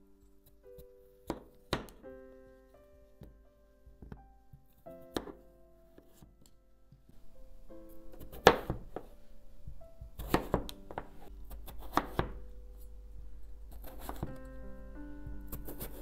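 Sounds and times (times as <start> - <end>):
background keyboard music: 0.0 - 16.0
knife chopping on wooden board: 1.3 - 2.0, 5.1 - 5.4, 8.2 - 9.1, 10.2 - 12.4, 13.7 - 14.4, 15.5 - 16.0.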